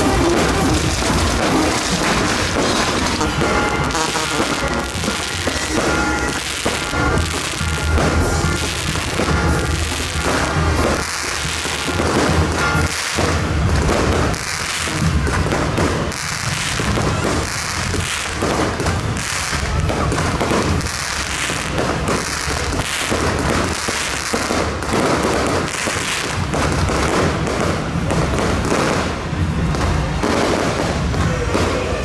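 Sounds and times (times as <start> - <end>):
spark fountains hissing: 0.0 - 24.8
fireworks crackles pops and thuds: 0.0 - 32.0.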